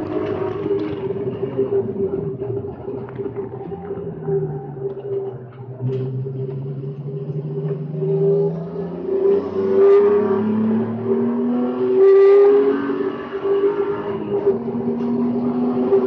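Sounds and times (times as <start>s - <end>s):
race car engine accelerating: 0.0s - 16.0s.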